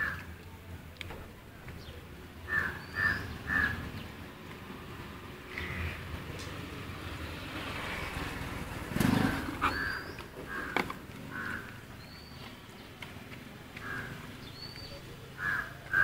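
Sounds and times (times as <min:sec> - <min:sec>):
crows cawing: 0:02.5 - 0:03.9, 0:05.5 - 0:06.0, 0:09.6 - 0:11.9, 0:13.8 - 0:14.3, 0:15.4 - 0:16.0.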